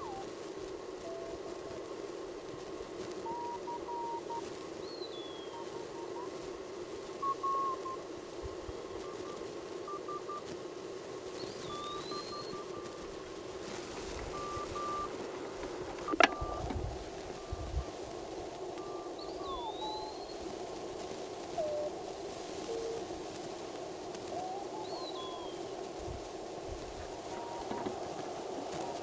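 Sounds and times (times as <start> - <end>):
radio band noise hiss: 0.0 - 29.0
morse code beeps: 14.0 - 17.9.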